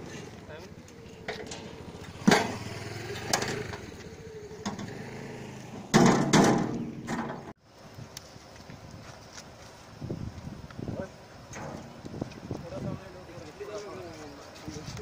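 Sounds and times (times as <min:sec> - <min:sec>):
roots clattering from metal cart: 0:00.0 - 0:04.0.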